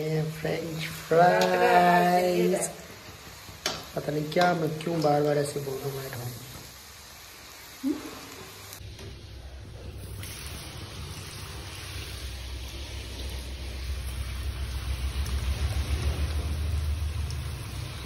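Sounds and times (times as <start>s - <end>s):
fries sizzling in oil: 0.0s - 18.0s
low rumble: 10.8s - 18.0s.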